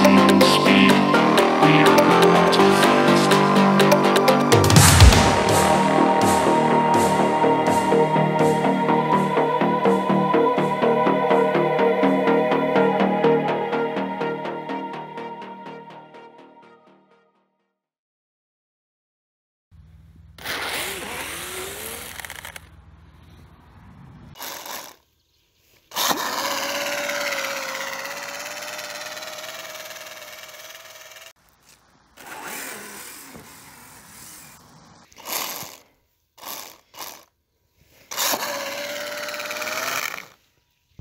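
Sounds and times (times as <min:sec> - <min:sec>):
electric motor whining: 0:20.4 - 0:22.7, 0:25.9 - 0:35.8, 0:38.1 - 0:40.4.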